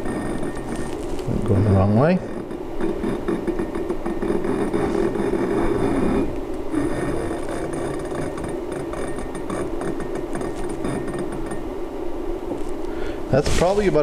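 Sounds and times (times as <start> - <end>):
steady low hum: 0.0 - 14.0
tuning rod clicks and scrapes: 2.2 - 11.6.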